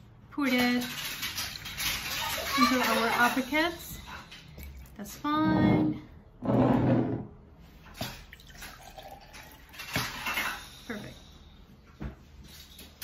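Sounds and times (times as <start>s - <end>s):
liquid splashing into jar: 8.0s - 10.3s.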